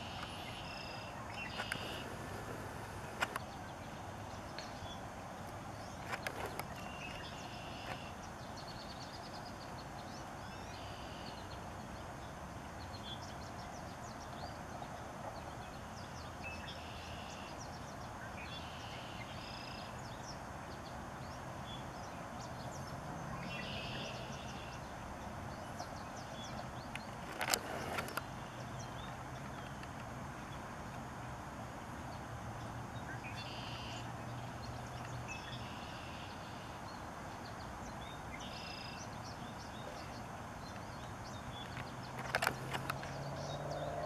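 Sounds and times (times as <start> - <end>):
outdoor background noise: 0.0 - 44.0.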